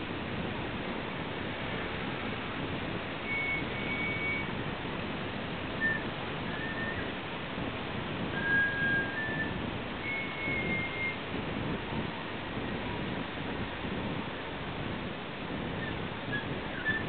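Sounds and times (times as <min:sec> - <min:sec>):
surf on beach: 0:00.0 - 0:17.0
wind: 0:00.0 - 0:17.0
high thin whistle tones: 0:03.2 - 0:04.5, 0:05.8 - 0:07.1, 0:08.4 - 0:11.2.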